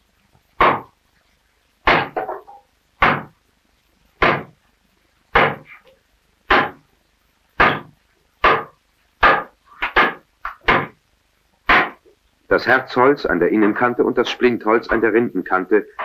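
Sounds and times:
hand axe chopping wood: 0:00.6 - 0:00.9, 0:01.8 - 0:03.4, 0:04.2 - 0:04.6, 0:05.4 - 0:05.7, 0:06.5 - 0:06.8, 0:07.6 - 0:11.0, 0:11.7 - 0:12.0.

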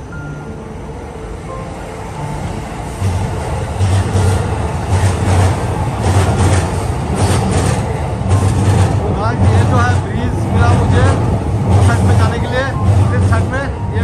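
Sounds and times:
traffic rumble: 0:00.0 - 0:14.0.

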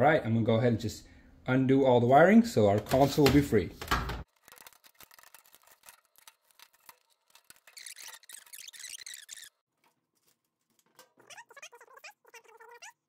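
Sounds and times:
high squeaky stretch: 0:05.2 - 0:09.6, 0:11.1 - 0:13.0.

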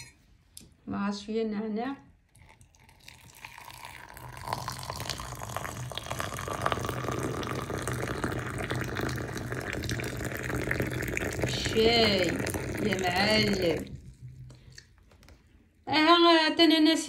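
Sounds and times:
tea pouring into a glass mug: 0:02.3 - 0:14.9.

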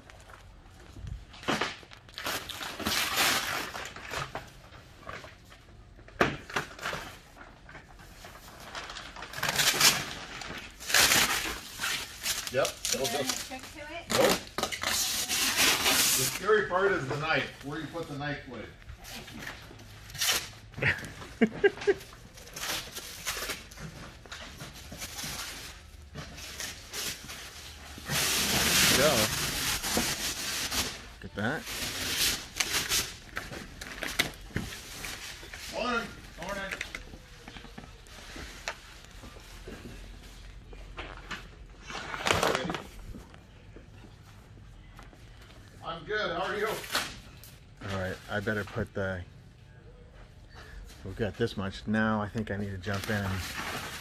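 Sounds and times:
plastic wrap crackling and rustling: 0:00.0 - 0:05.9, 0:06.6 - 0:21.0, 0:21.6 - 0:43.5, 0:52.4 - 0:54.0
plastic shrink wrap tearing: 0:01.4 - 0:04.3, 0:08.6 - 0:16.8, 0:26.5 - 0:37.0.

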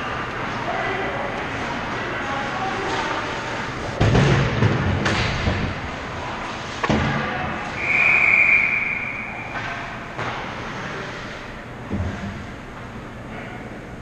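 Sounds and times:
referee's whistle blast: 0:07.8 - 0:09.6.

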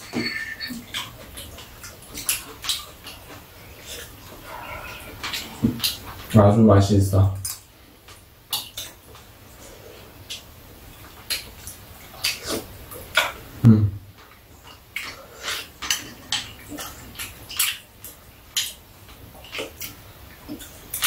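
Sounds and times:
metal spoons clinking on bowls: 0:00.0 - 0:00.9.

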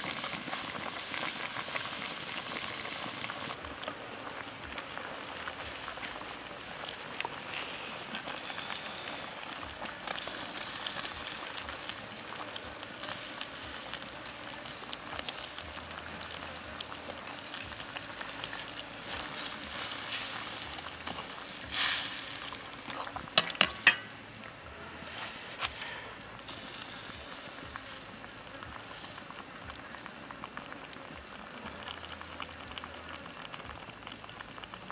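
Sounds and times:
soup boiling and bubbling: 0:00.0 - 0:34.9
ladle clicking in wok: 0:23.4 - 0:24.1.

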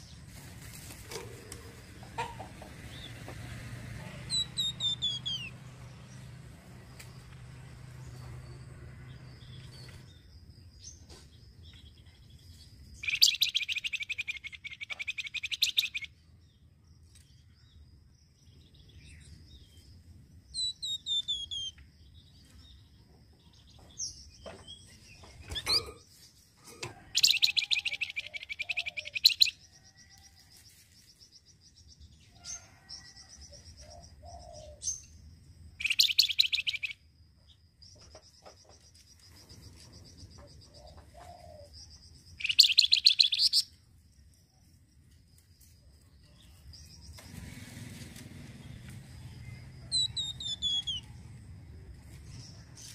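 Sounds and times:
songbird chattering calls: 0:13.0 - 0:16.1, 0:27.1 - 0:29.6, 0:35.8 - 0:37.0, 0:42.3 - 0:43.7
bird chirps and whistles: 0:35.8 - 0:37.0, 0:42.4 - 0:43.7, 0:50.0 - 0:51.0.

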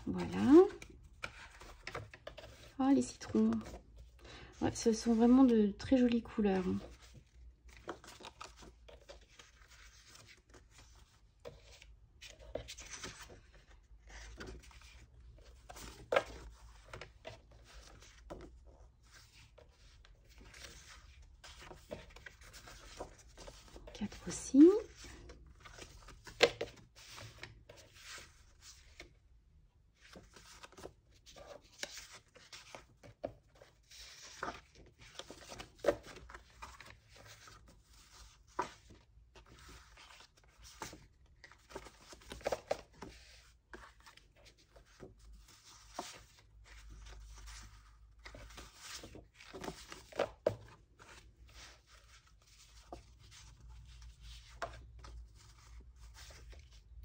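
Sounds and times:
paper sheets rustling: 0:30.0 - 0:56.8.

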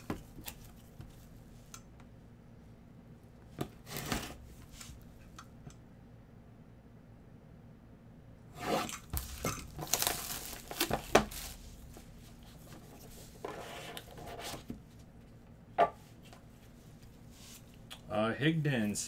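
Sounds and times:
plastic wrapping tearing and crinkling: 0:09.0 - 0:11.9.

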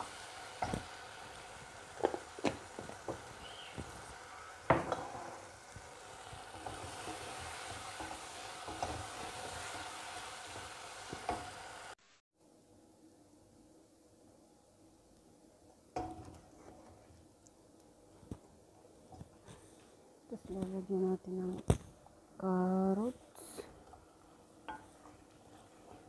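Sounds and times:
chicken sizzling in a pan: 0:00.0 - 0:12.2, 0:23.4 - 0:26.0
wooden spoon knocking a pan: 0:02.0 - 0:04.1, 0:04.7 - 0:05.4, 0:06.4 - 0:09.8.

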